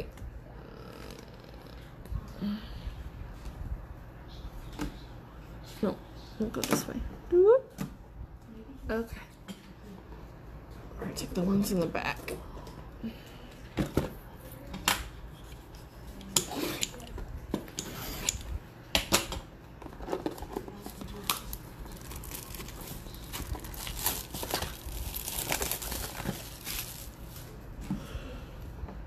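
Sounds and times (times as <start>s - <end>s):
plastic wrap tearing and crinkling: 20.1s - 27.6s.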